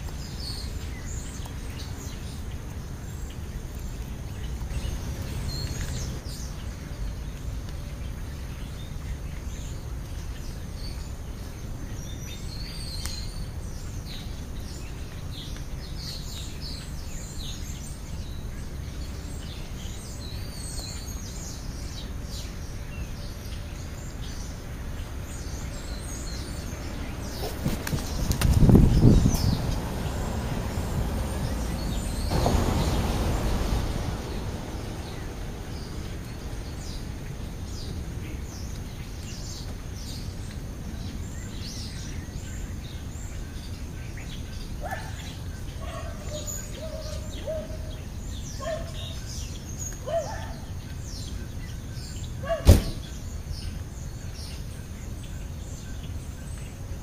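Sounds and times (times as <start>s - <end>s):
wings flapping: 27.3s - 29.0s
vehicle door shutting: 52.6s - 53.2s.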